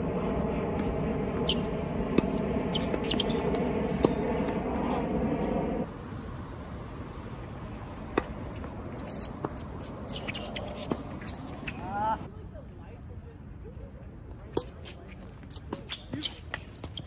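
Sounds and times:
droning hum: 0.0 - 12.3
tennis balls struck by rackets: 8.0 - 11.9.

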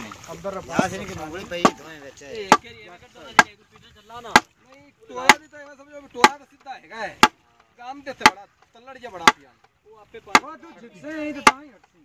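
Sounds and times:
wooden plank knocking on engine: 7.2 - 7.4, 8.2 - 8.4, 10.3 - 10.5, 11.4 - 12.0.

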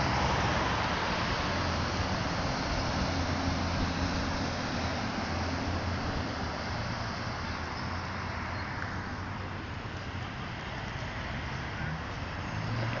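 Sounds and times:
low engine hum: 0.0 - 13.0
passing vehicles: 0.0 - 13.0.

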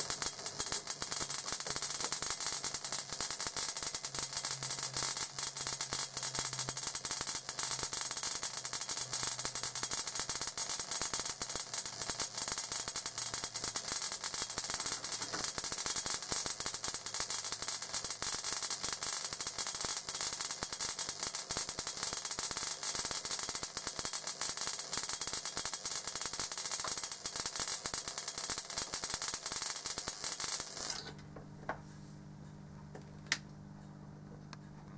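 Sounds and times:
electrical discharges crackling: 0.0 - 31.2
faint hum: 30.9 - 34.9.

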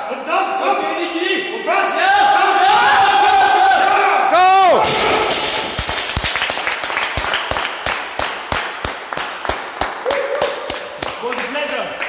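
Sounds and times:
hands clapping: 5.8 - 12.0.

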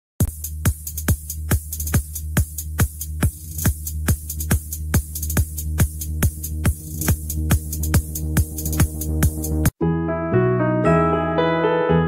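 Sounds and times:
electronic dance music: 0.2 - 9.7.

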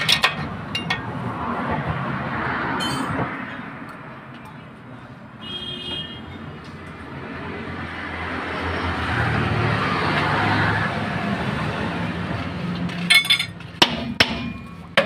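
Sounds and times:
vehicle passing by: 1.0 - 3.8, 6.9 - 12.9.

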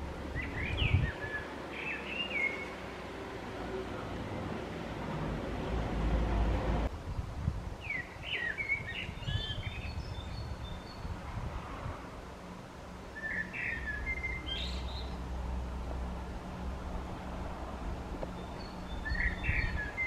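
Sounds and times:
blackbird singing: 0.3 - 2.8, 7.8 - 11.1, 13.2 - 15.2, 18.3 - 20.0.

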